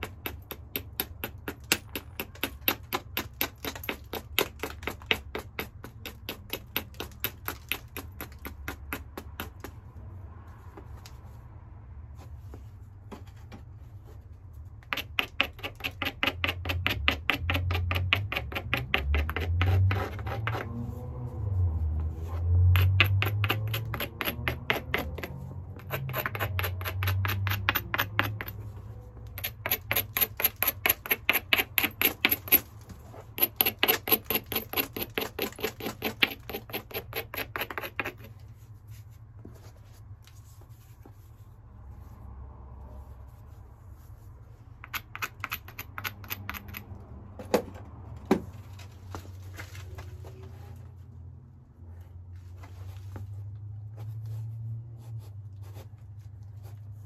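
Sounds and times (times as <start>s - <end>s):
stone scratching against stone: 0.0s - 9.7s, 14.8s - 21.0s, 22.2s - 38.7s, 43.4s - 47.0s.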